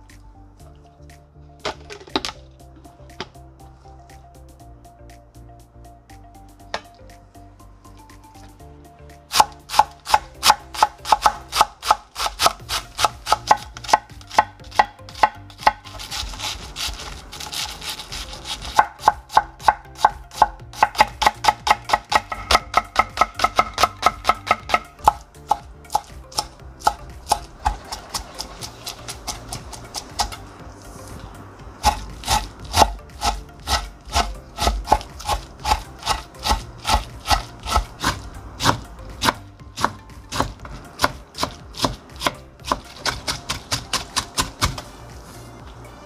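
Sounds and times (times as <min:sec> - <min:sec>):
knife chopping on cutting board: 0:09.3 - 0:30.4, 0:31.8 - 0:44.9.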